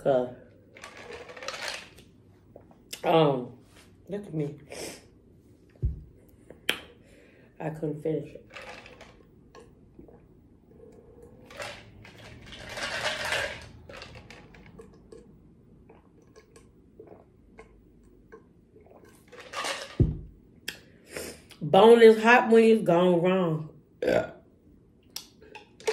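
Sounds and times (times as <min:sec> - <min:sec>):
ice rattling in plastic tumbler: 0:00.8 - 0:02.0, 0:08.4 - 0:09.2, 0:11.4 - 0:14.7
low thump: 0:05.8 - 0:06.1
person sipping: 0:08.5 - 0:19.6.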